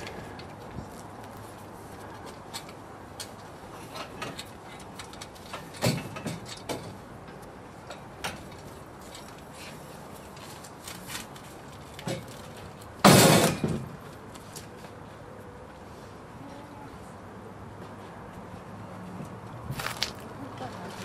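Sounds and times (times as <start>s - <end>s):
metal knocks and clunks: 5.6s - 7.0s.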